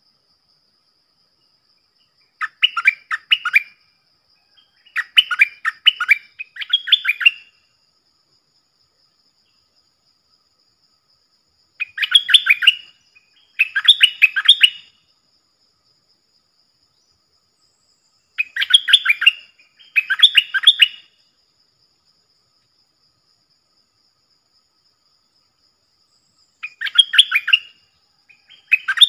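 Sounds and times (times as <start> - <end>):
bulbuls singing warbled notes: 4.9 - 7.6, 18.4 - 21.0, 26.6 - 27.8, 28.4 - 29.0.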